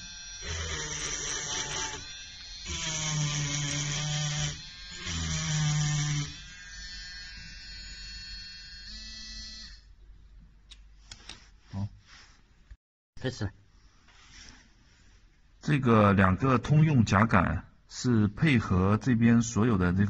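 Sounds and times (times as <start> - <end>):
rotary tool engraving stone: 0.0 - 9.8.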